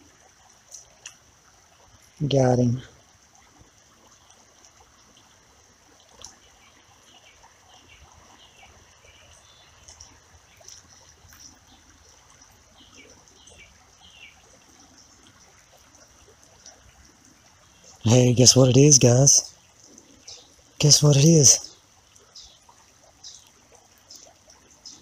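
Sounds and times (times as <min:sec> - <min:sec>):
creek water trickling: 0:00.0 - 0:25.0
small ticks: 0:00.2 - 0:02.2, 0:03.3 - 0:18.0, 0:21.9 - 0:25.0.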